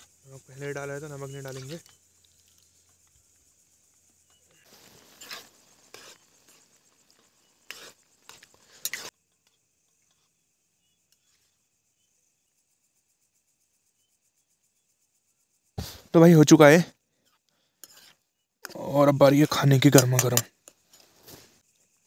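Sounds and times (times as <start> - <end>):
spoon scraping a cooking pot: 4.3 - 10.3, 17.2 - 18.8, 19.5 - 21.1.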